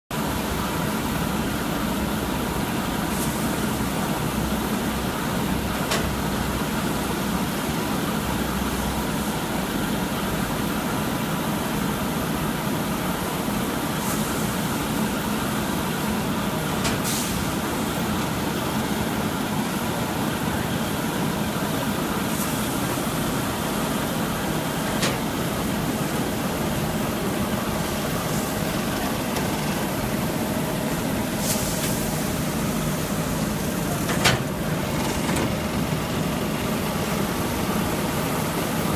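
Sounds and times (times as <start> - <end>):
packing machinery running: 12.6 - 38.9.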